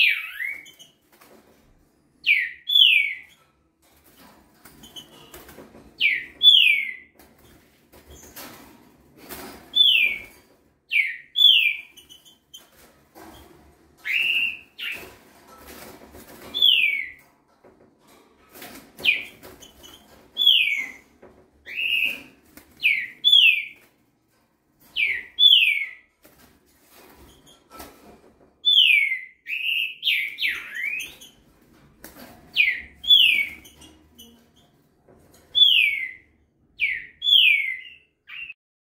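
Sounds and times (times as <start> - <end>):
bird whistled song: 0.0 - 0.8, 35.6 - 38.6.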